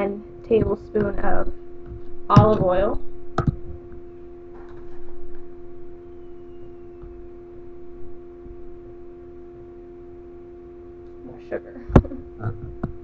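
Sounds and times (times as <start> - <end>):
electrical hum: 0.0 - 13.0.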